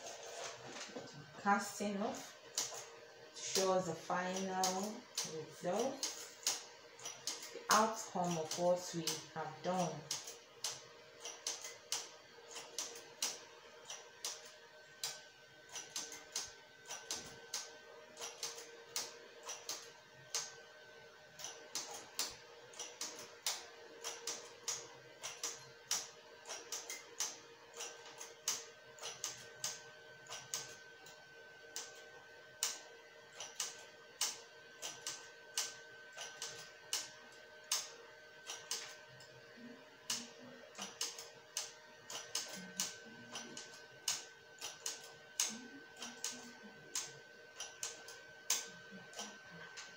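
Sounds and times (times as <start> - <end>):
knitting machine needles clicking: 2.5 - 20.5, 21.4 - 39.0, 40.1 - 49.9.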